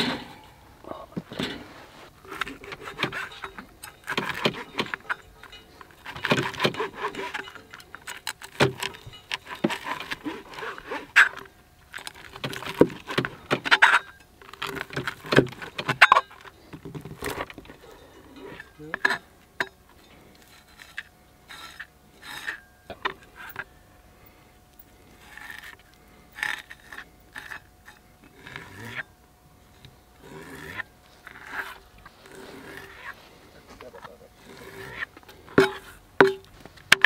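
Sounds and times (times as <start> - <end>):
small hard objects clinking: 7.2 - 10.2.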